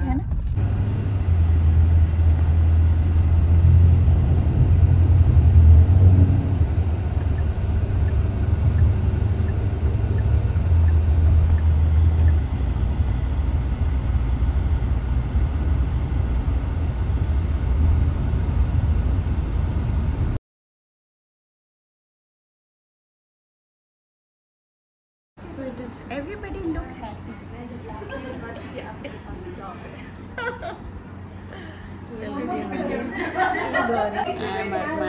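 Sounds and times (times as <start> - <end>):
car interior rumble: 0.0 - 20.4.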